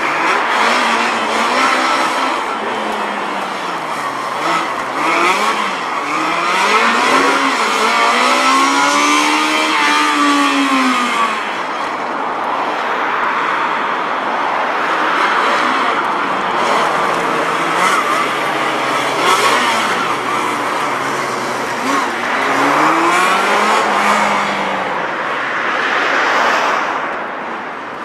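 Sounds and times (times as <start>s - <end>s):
small truck engine revving: 0.0s - 12.0s, 15.2s - 25.0s.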